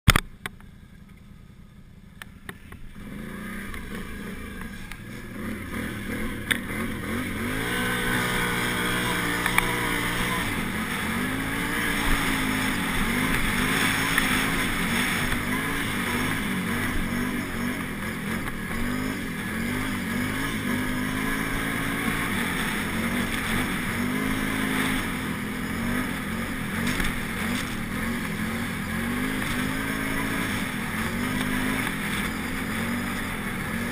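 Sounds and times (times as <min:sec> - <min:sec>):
quad bike engine revving: 0:02.0 - 0:33.9.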